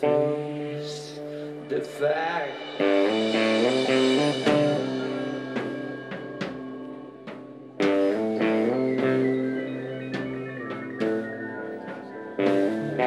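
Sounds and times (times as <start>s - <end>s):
electric guitar chords: 0.0s - 13.0s
sharp drum hits: 2.1s - 9.2s.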